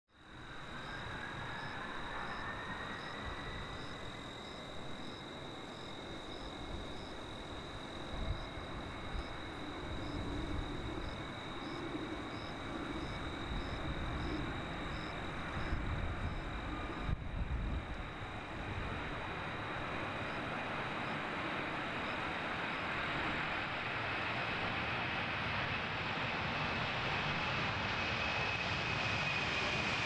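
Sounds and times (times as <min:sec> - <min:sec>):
jet engines whining: 0:18.4 - 0:30.0
jet engine spooling up: 0:23.5 - 0:30.0.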